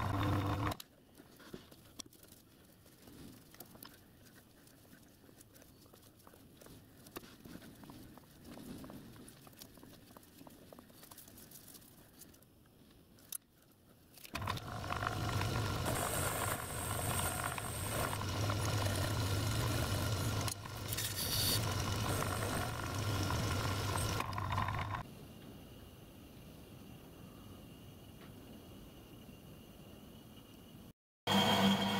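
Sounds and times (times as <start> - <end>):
lathe motor humming: 0.0 - 0.8, 14.4 - 25.0, 31.3 - 31.9
tool cutting metal hissing: 14.4 - 25.0.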